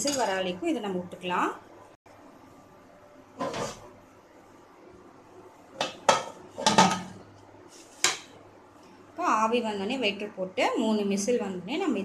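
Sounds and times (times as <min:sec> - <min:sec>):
metal pot lid clanking: 0:05.8 - 0:07.2.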